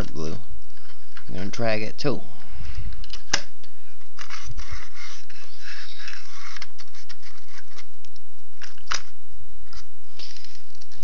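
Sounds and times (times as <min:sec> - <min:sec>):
paint scraping on plastic: 0:04.0 - 0:07.9.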